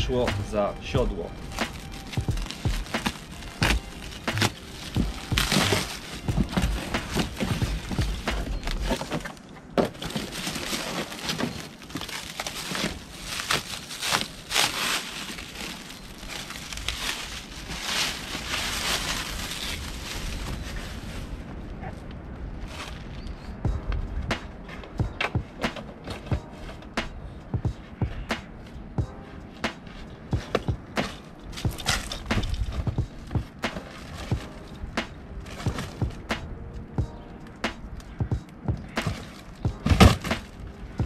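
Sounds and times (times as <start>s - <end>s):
packaging rustling and tearing: 0.8s - 21.3s, 30.5s - 34.7s.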